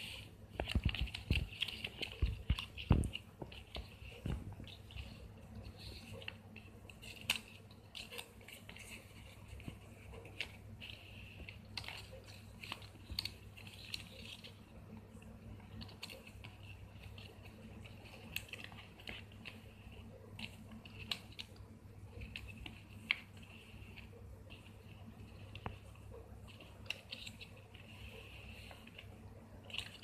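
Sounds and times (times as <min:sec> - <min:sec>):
card crinkling and rustling: 0:00.0 - 0:30.0
small clicks and taps: 0:00.1 - 0:05.2.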